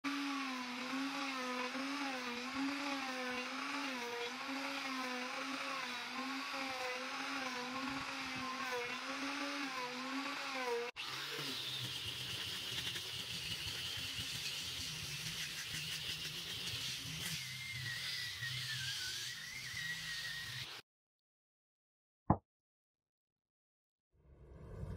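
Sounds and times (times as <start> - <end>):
wood router motor whine: 0.0 - 13.0, 17.0 - 20.8
disc sander humming: 0.1 - 12.0.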